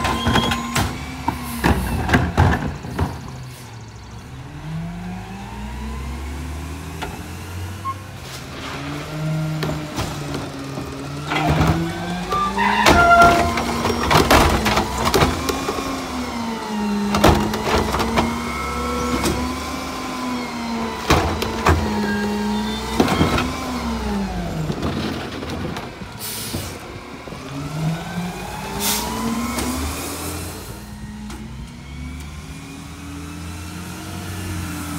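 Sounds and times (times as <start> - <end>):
trash cart clanks and bangs: 0.0 - 3.5, 8.2 - 16.2, 17.0 - 19.7, 20.8 - 27.0
garbage truck engine revving: 0.0 - 34.9.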